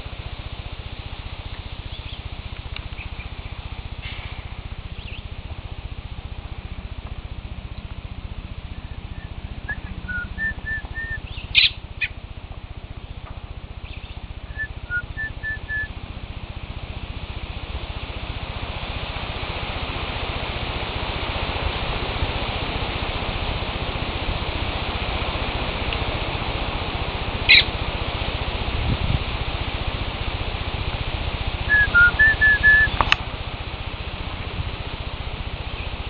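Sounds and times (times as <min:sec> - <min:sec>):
steady hiss: 0:00.0 - 0:36.0
robin chirping: 0:01.9 - 0:02.3, 0:04.9 - 0:05.3, 0:08.7 - 0:12.2, 0:13.8 - 0:15.9, 0:27.5 - 0:27.7, 0:31.7 - 0:33.2
person whistling short notes: 0:31.7 - 0:33.0.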